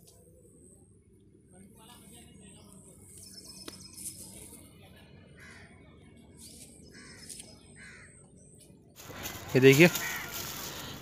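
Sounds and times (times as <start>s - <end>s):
harsh bird calls: 5.3s - 11.0s.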